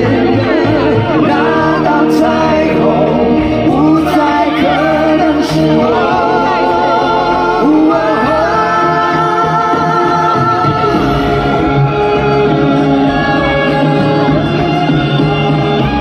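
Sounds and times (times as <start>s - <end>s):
man singing rock ballad: 0.0s - 11.6s
live band playing: 0.0s - 16.0s.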